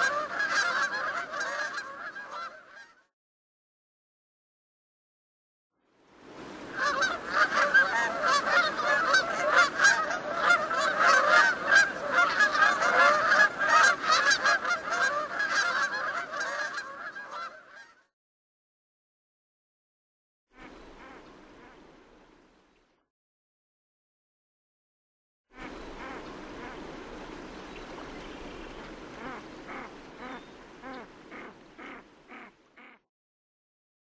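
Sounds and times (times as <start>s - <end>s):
geese honking: 0.0s - 3.0s, 6.8s - 18.0s, 29.1s - 33.0s.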